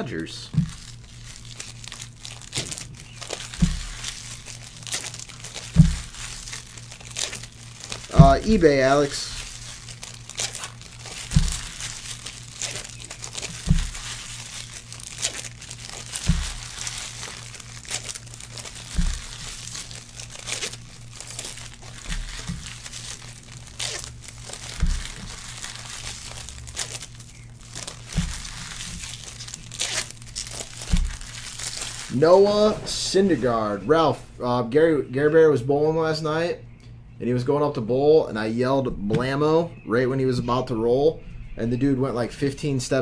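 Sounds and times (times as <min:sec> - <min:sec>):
foil wrappers crinkling and tearing: 0:00.0 - 0:33.8
steady low hum: 0:00.0 - 0:43.0
soft low thumps: 0:00.4 - 0:33.0.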